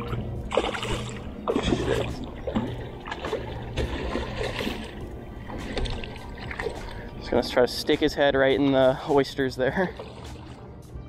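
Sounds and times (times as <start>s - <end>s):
fish splashing in water: 0.0s - 7.2s, 9.9s - 10.7s.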